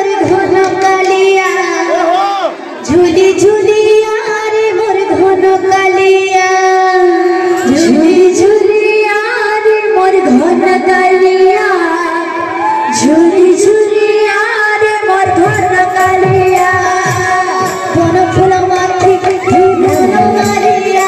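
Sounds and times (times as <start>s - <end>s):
woman singing devotional song: 0.0s - 2.0s, 2.8s - 21.0s
instrumental accompaniment: 14.2s - 21.0s
sharp percussion strokes: 15.2s - 21.0s.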